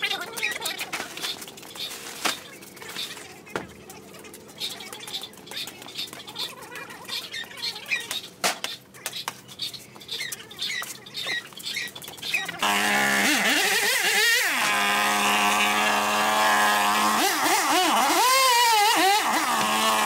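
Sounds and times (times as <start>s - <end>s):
small birds chirping: 0.0s - 12.6s.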